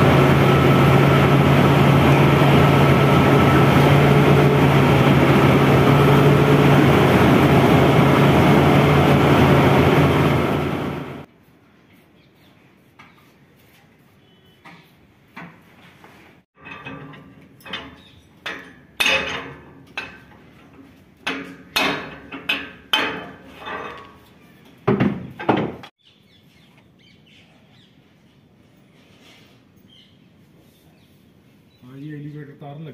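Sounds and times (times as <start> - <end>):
hammer striking metal: 17.7 - 20.3, 21.2 - 23.5.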